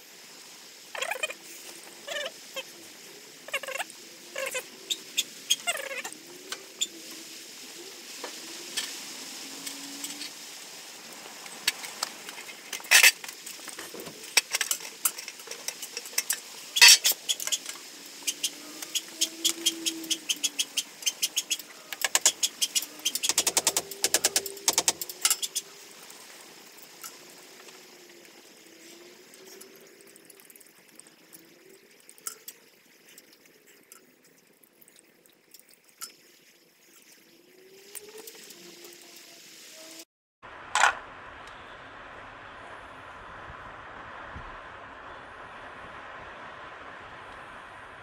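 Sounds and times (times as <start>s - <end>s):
rapid clicks: 21.0s - 25.6s.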